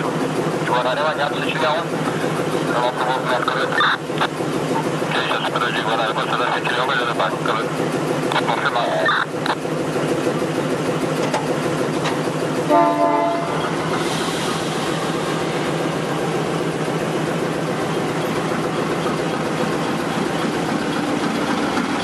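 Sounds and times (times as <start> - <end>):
locomotive diesel engine running: 0.0 - 22.0
locomotive horn blast: 12.6 - 14.4.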